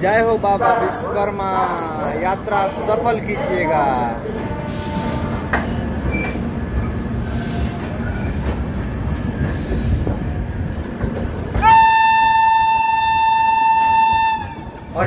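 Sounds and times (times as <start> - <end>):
train rumbling: 0.0 - 15.0
locomotive horn long high note: 4.3 - 5.5, 11.6 - 14.8.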